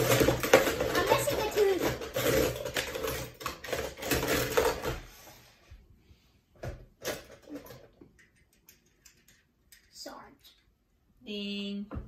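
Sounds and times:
toy cars clattering in plastic bowl: 0.0 - 5.1
toy car clicks: 7.6 - 10.1.

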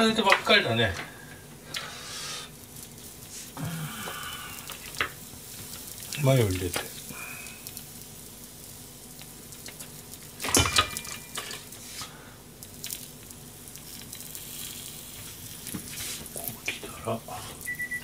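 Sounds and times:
bread sizzling in frying pan: 1.6 - 18.0.

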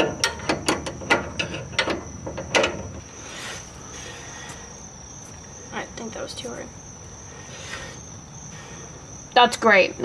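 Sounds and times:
crickets chirping: 0.0 - 10.0.

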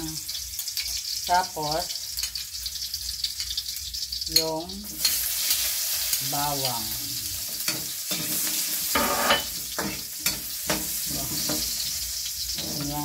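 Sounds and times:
garlic sizzling in hot oil: 0.0 - 13.0
spatula scraping a wok: 7.3 - 13.0.

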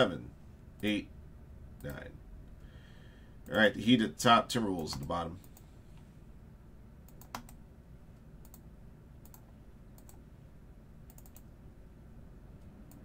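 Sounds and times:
mouse and keyboard clicks: 11.1 - 11.5.

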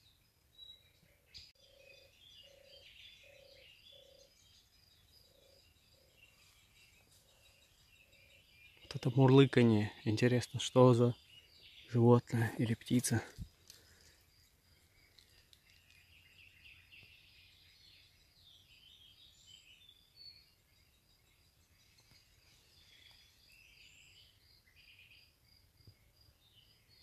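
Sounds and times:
bird chirps: 0.0 - 27.0
bird song phrases: 0.0 - 27.0.

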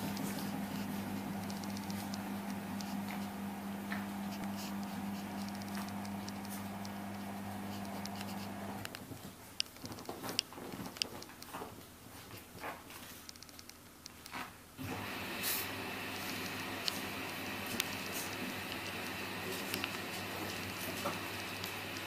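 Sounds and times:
dog pattering and scratching: 3.9 - 13.6.

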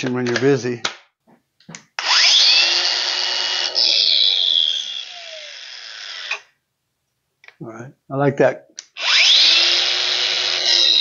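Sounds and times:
angle grinder whine: 2.0 - 6.5, 8.9 - 11.0.

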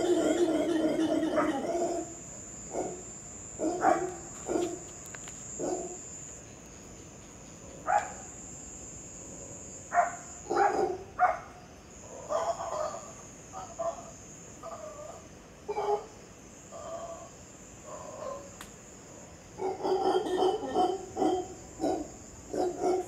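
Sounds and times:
monkeys calling: 0.0 - 2.1
steady high whine: 0.0 - 19.8.

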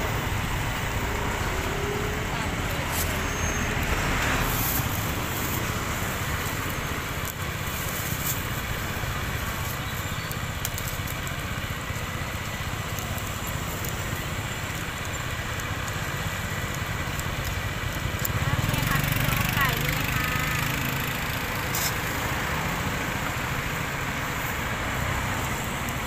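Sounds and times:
meat grilling crackling: 0.0 - 26.0
street traffic engines: 0.0 - 26.0
plastic bag rustling: 2.7 - 6.6, 7.5 - 9.9.

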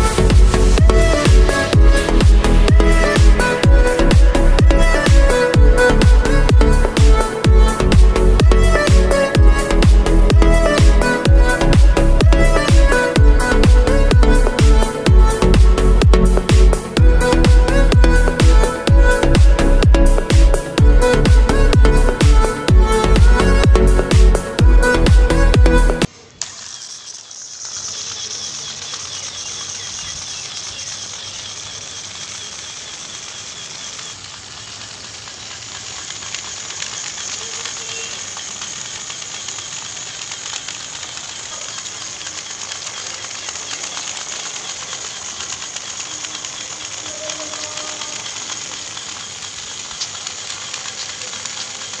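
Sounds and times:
small electric motor whirring: 0.0 - 52.0
toy wheels rattling on concrete: 26.4 - 52.0.

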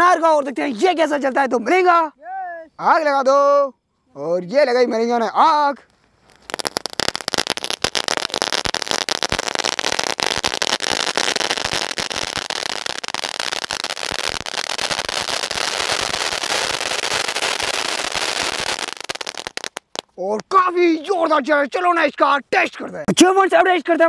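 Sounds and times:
firework fountain hissing and crackling: 6.2 - 20.1.

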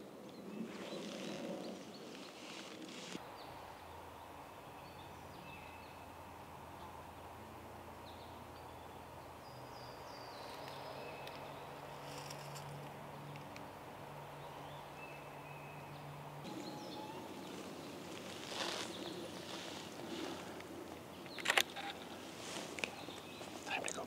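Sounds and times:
songbirds singing: 0.0 - 24.0
rustling: 0.6 - 3.2, 16.5 - 24.0.

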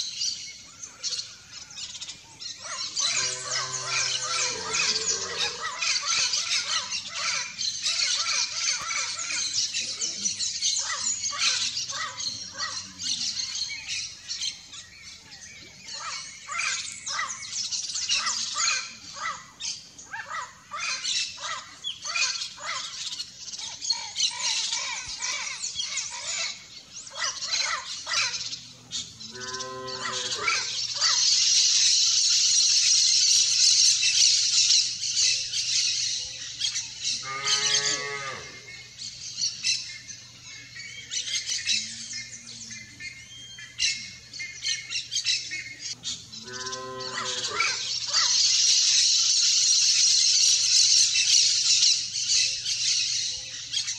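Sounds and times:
parrots squawking and chattering: 1.8 - 14.0, 15.9 - 32.1, 40.4 - 53.9
drawn-out parrot calls: 2.6 - 10.0.

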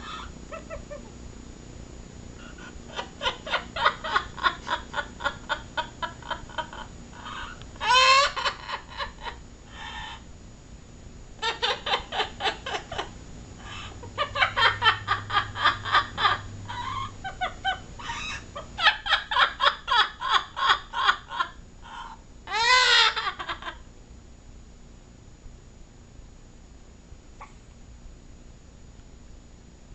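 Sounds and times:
parrot laughing: 0.0 - 1.1, 2.4 - 10.2, 11.4 - 23.8
parrot squawk: 21.9 - 23.4.

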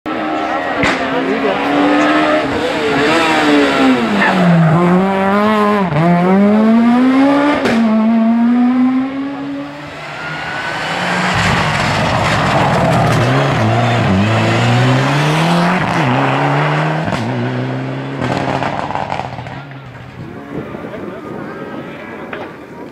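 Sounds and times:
rally car engines revving: 0.1 - 22.7
sharp engine crack: 10.8 - 14.1.

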